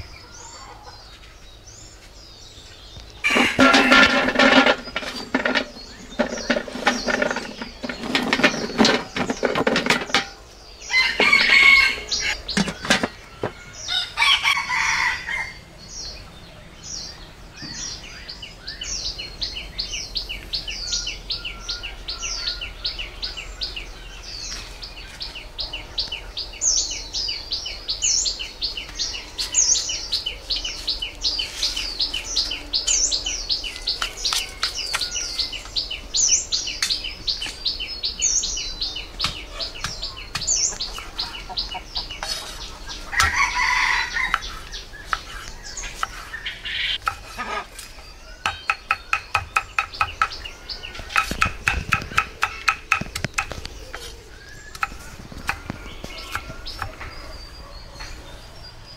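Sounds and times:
chickens clucking: 0.0 - 1.3, 3.2 - 15.5, 38.9 - 58.5
rooster crowing: 3.2 - 4.0, 10.9 - 12.4, 13.9 - 15.6, 43.1 - 44.5
rustling: 3.2 - 10.4
small bird chirping: 17.0 - 58.9.

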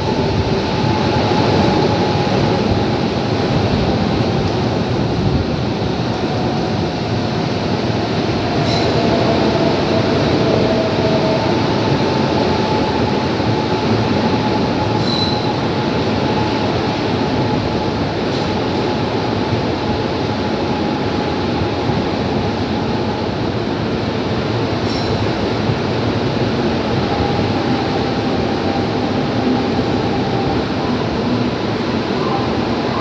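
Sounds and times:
train wheels rumbling on rail: 0.0 - 33.0
wheel squeal: 14.9 - 15.6
short high squeaks: 15.0 - 15.5.

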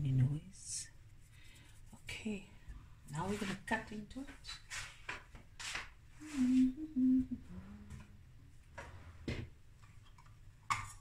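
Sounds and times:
soft rustles: 1.0 - 6.8
person humming: 6.2 - 8.2.

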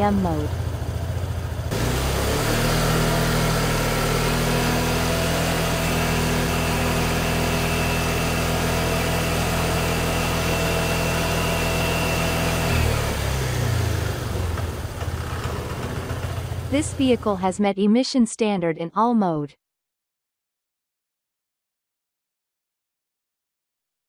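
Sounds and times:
motorcycle engine revving: 0.0 - 17.3.

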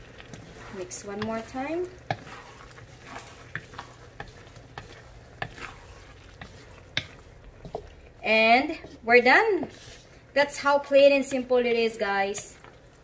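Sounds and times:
utensil scraping pan: 0.0 - 10.2
food sizzling: 0.0 - 13.0.

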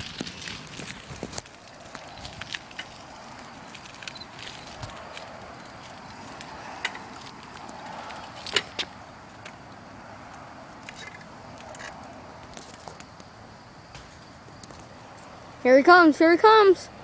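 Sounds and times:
quiet street ambience: 0.0 - 17.0.

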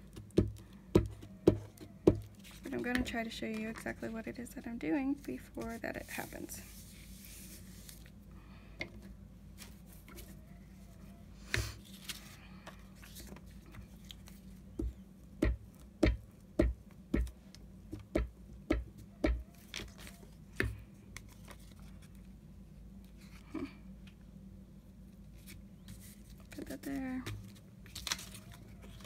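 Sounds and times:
paper handling: 1.8 - 4.3, 5.1 - 8.2, 9.5 - 10.9, 11.7 - 14.7, 19.5 - 20.4, 21.1 - 22.3, 25.3 - 29.0
sharp taps on a tabletop: 14.8 - 17.3.

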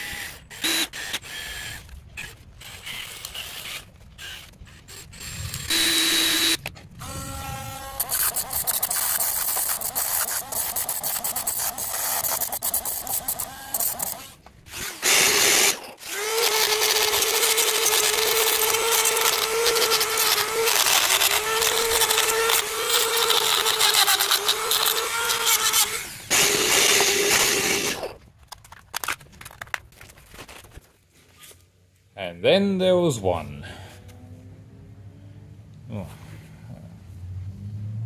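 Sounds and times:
power tool cutting metal: 2.6 - 28.1.

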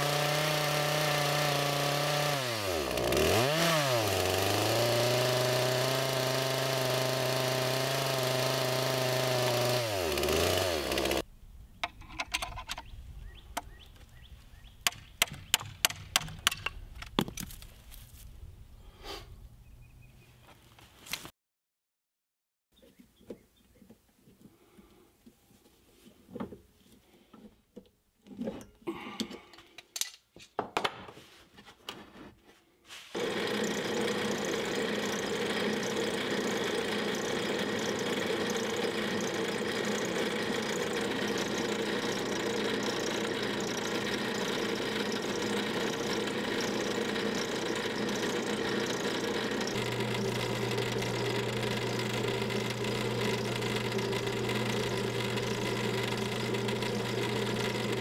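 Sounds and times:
drill press motor running: 0.0 - 11.2, 33.2 - 58.0
drill chuck clicking and knocking: 11.8 - 12.9, 33.2 - 58.0.

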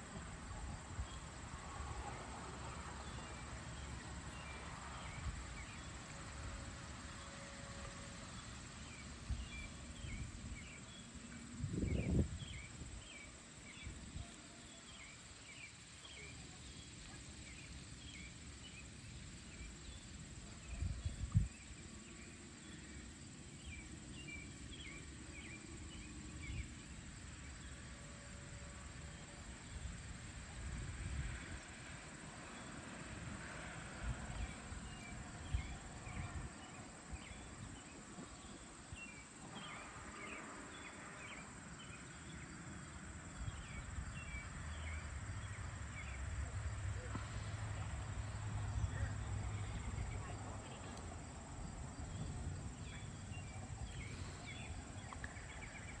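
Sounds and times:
high insect drone: 0.0 - 56.0
wind on microphone: 11.6 - 13.0.

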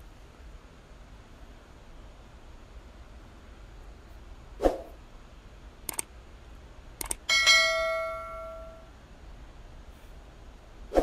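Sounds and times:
sharp clicks: 5.8 - 6.1, 7.0 - 7.3
bright multi-tone chime: 7.3 - 8.8.

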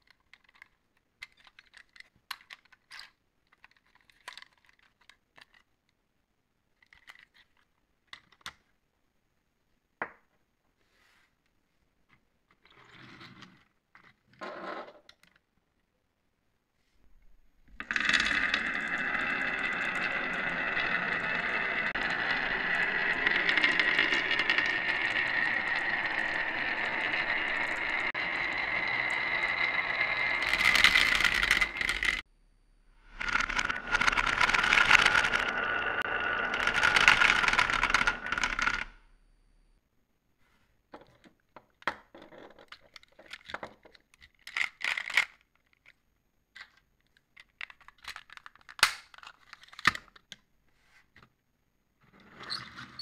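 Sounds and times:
plastic toy truck handled: 0.0 - 6.0, 6.7 - 8.6, 41.0 - 50.4
small clicks and rattles: 0.0 - 6.0, 6.7 - 8.7, 17.7 - 32.2, 33.1 - 39.0, 41.0 - 50.4
marbles rolling down wooden groove: 17.7 - 32.2, 33.1 - 39.0.

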